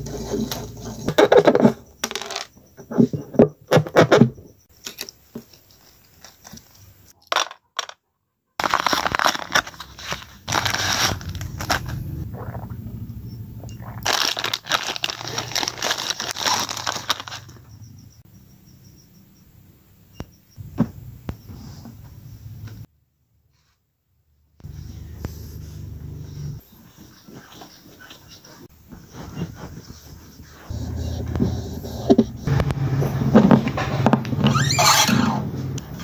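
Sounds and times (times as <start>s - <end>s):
rustling and crinkling: 0.0s - 8.0s, 8.6s - 12.6s, 13.8s - 17.7s, 26.6s - 35.1s.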